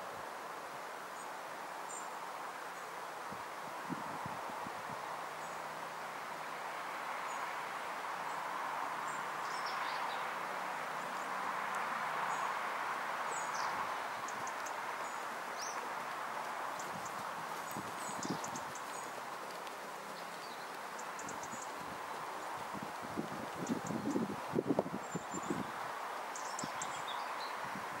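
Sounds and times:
wind rustling through trees: 0.0s - 28.0s
muffled hoofbeats: 16.0s - 23.9s.

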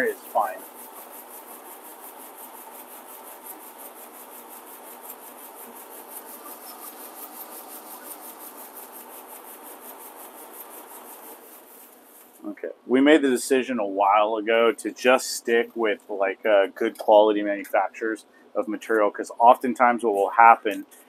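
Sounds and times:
label machine running: 0.0s - 12.1s.

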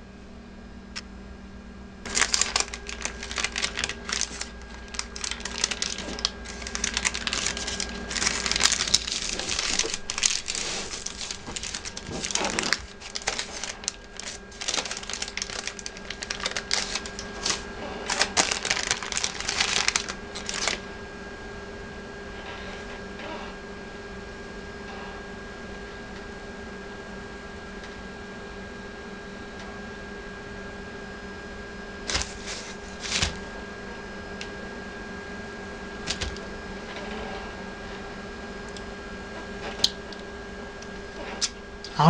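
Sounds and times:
foil and paper crinkling: 2.1s - 20.8s, 32.0s - 33.4s, 36.0s - 36.5s.

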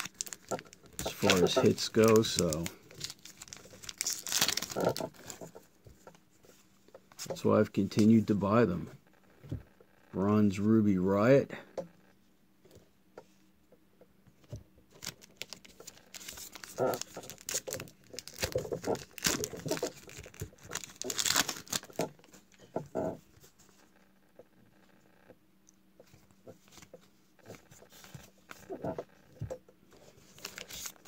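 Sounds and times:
card pack wrapper tearing: 0.0s - 5.4s, 14.9s - 22.2s, 30.4s - 31.0s
cards rustling: 0.0s - 5.6s, 14.9s - 22.4s, 30.1s - 31.0s.

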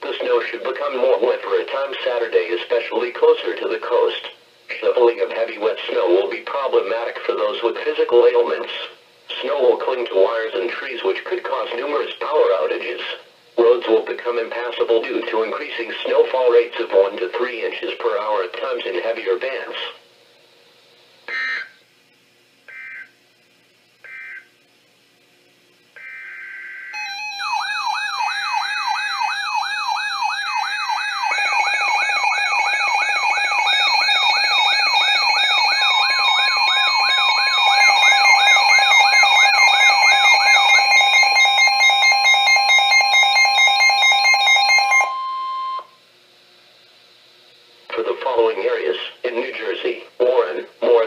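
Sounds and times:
digital alert header bursts: 21.3s - 21.7s, 22.7s - 23.1s, 24.0s - 24.5s, 26.0s - 45.9s
pulsing high beeps: 21.3s - 21.7s, 26.0s - 46.0s
warbling siren: 21.3s - 21.8s, 22.7s - 23.1s, 24.0s - 24.5s, 26.0s - 46.0s.

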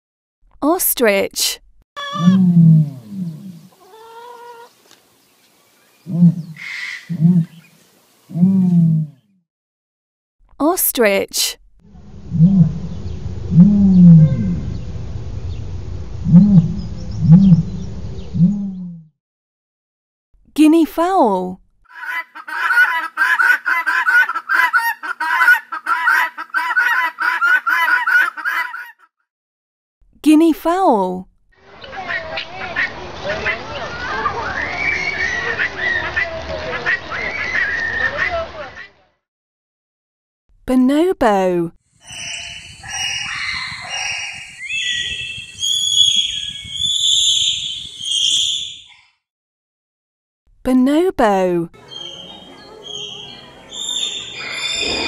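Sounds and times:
ostrich calls: 21.9s - 28.9s, 42.1s - 48.9s, 51.8s - 55.0s.

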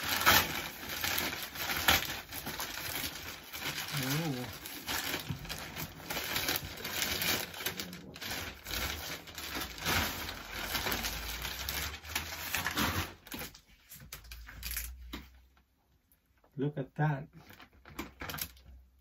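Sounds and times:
plastic bag rustling and crinkling: 0.0s - 15.0s.

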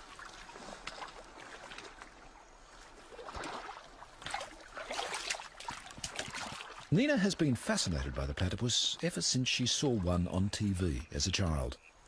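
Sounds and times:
small knocks and splashes: 0.0s - 6.9s
water sloshing and trickling: 0.0s - 10.8s.

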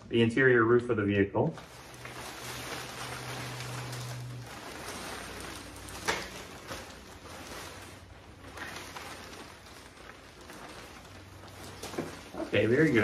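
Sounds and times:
fabric rustling: 1.5s - 13.0s.

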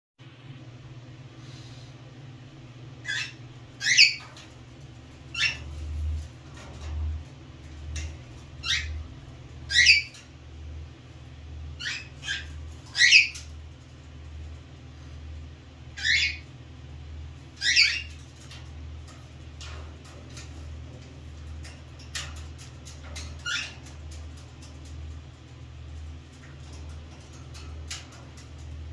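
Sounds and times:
low steady hum: 0.2s - 28.9s
cockatiel chirping: 3.0s - 4.3s, 5.3s - 5.6s, 8.6s - 9.0s, 9.7s - 10.2s, 11.8s - 13.5s, 16.0s - 16.4s, 17.6s - 18.2s, 23.4s - 23.8s.

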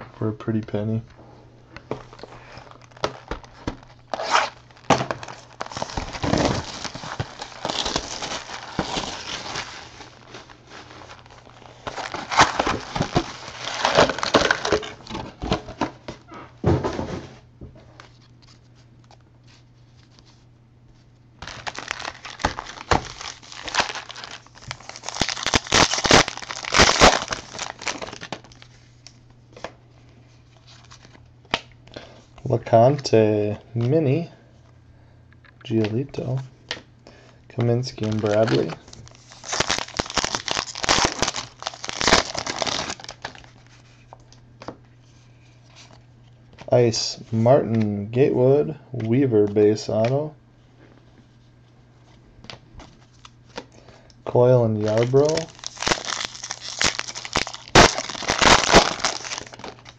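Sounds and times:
card packs crinkling and tearing: 1.8s - 16.2s, 21.4s - 29.7s, 30.5s - 31.7s, 37.2s - 44.2s, 54.7s - 59.9s.

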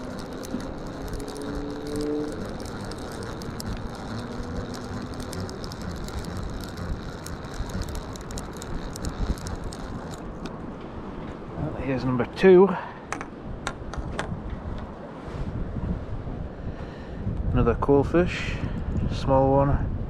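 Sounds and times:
fishing reel ratchet clicking: 0.0s - 10.5s
low rumble: 0.0s - 11.6s.

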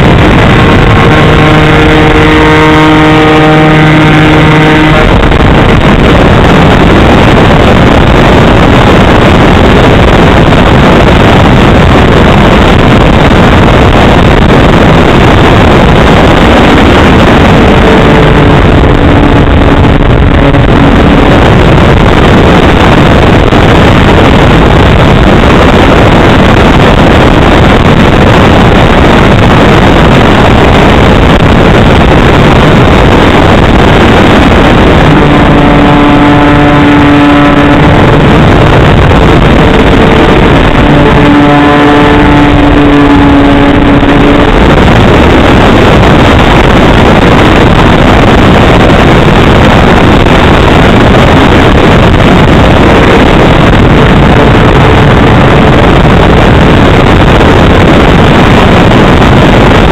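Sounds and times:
model plane motor buzz: 0.0s - 9.0s
wind rush on microphone: 0.0s - 59.9s.

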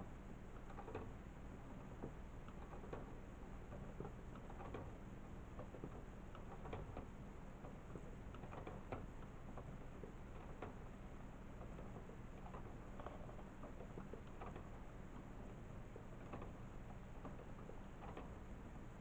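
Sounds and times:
low steady hum: 0.0s - 19.0s
plastic linkage clicking: 0.6s - 1.1s, 2.0s - 5.0s, 5.6s - 10.8s, 11.6s - 15.3s, 16.0s - 18.4s.

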